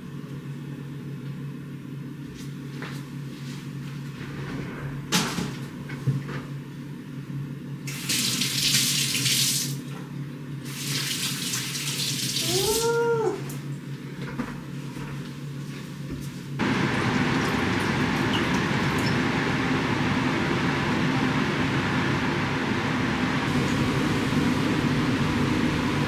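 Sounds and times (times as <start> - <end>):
kitchen tap running: 7.9 - 9.8, 10.7 - 12.8, 16.6 - 26.0.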